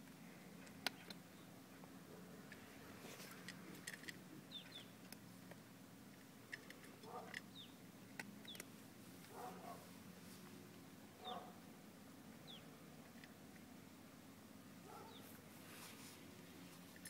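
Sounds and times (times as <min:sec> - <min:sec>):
low steady hum: 0:00.0 - 0:17.0
small bird chirping: 0:04.5 - 0:05.0, 0:07.1 - 0:07.8, 0:08.4 - 0:08.7, 0:12.4 - 0:12.7, 0:15.0 - 0:15.4.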